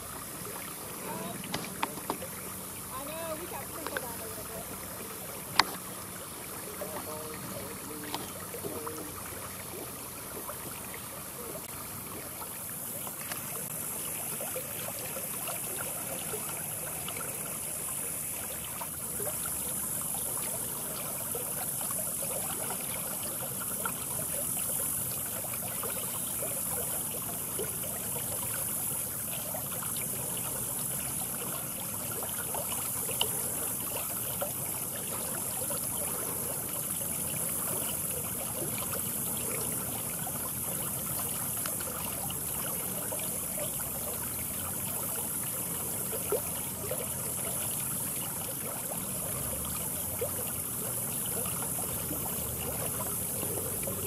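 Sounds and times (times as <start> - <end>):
constant high-pitched tone: 0.0 - 54.0
outdoor background hiss: 0.0 - 54.0.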